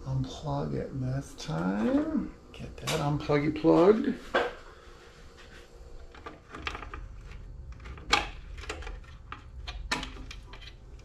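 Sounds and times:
clicks and knocks of parts handled: 0:06.0 - 0:11.0.

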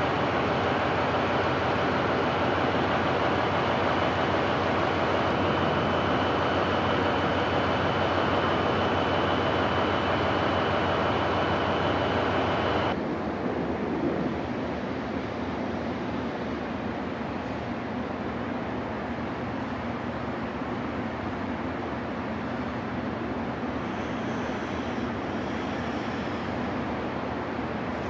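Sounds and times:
railway station rumble and hiss: 0:00.0 - 0:28.0
faint high whine: 0:03.2 - 0:13.0.

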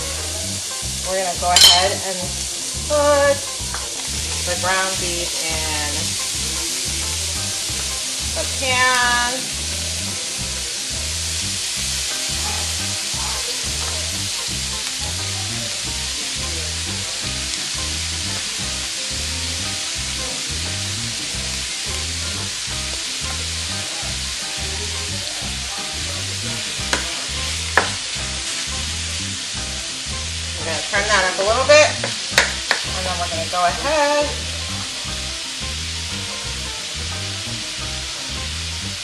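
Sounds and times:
ground beef sizzling in pan: 0:00.0 - 0:39.0
spatula knocking against pan: 0:01.6 - 0:02.0, 0:26.9 - 0:27.1.

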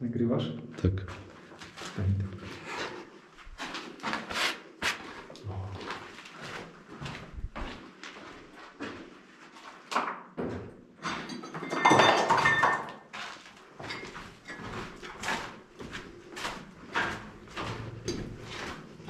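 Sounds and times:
footsteps on gritty floor: 0:01.0 - 0:09.8, 0:13.1 - 0:19.0
scraping rustling noise: 0:01.6 - 0:05.3.

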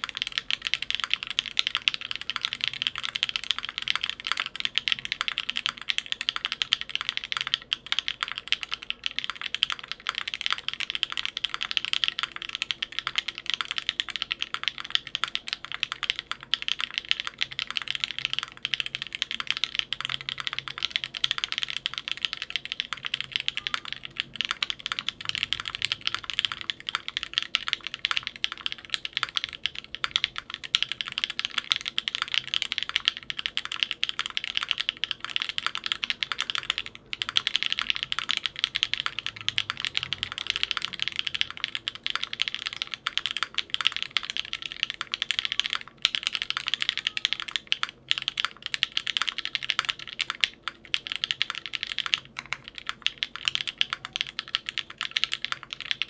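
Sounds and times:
mechanical keyboard typing: 0:00.0 - 0:56.0.

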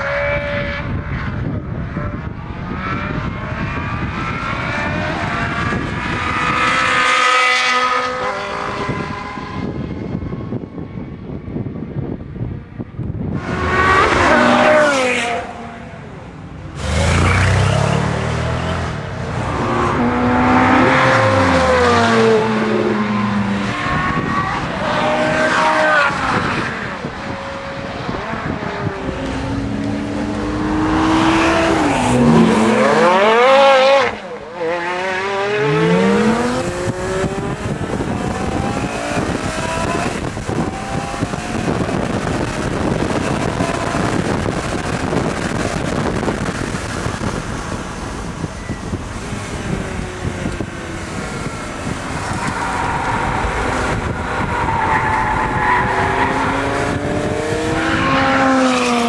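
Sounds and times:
sports car engines revving past: 0:00.0 - 0:11.6, 0:13.0 - 0:59.0
noisy rush: 0:00.0 - 0:59.0.

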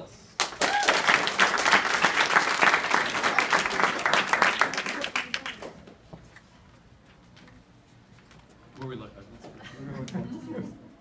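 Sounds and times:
people clapping: 0:00.4 - 0:05.9.

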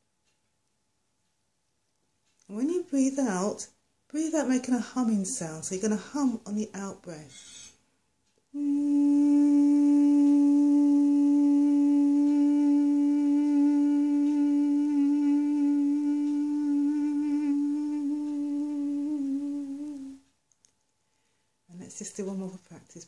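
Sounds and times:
woman humming: 0:08.6 - 0:20.2.

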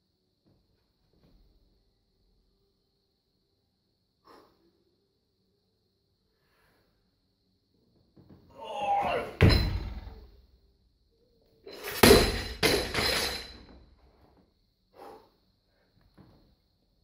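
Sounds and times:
barbell thudding on rubber mats: 0:09.4 - 0:10.3, 0:11.8 - 0:13.7.

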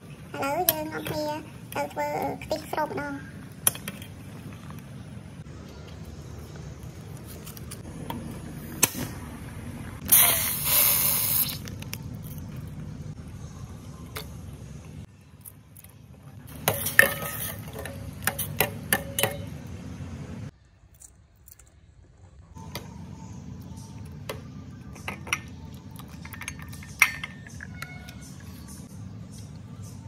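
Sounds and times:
low steady hum: 0:11.6 - 0:30.0
metal utensils clinking on a pot: 0:16.5 - 0:19.5, 0:24.9 - 0:28.2.

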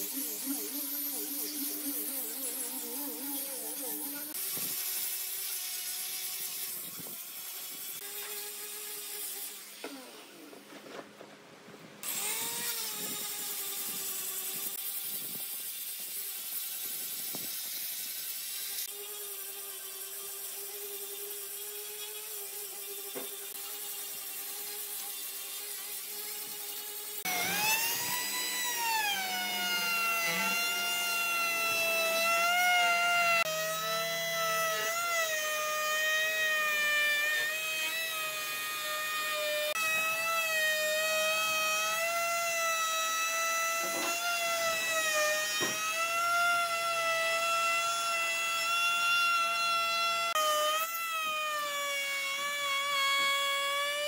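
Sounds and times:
trim router cutting wood: 0:00.0 - 0:10.5, 0:12.0 - 0:15.4, 0:18.7 - 0:54.0
angle grinder sanding wood: 0:00.0 - 0:10.7, 0:12.0 - 0:54.0.

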